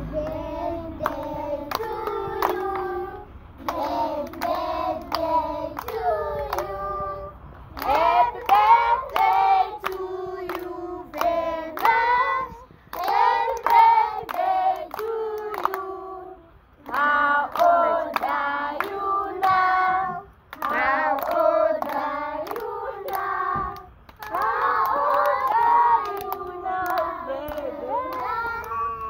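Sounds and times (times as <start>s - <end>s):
hands clapping: 20.5s - 29.0s.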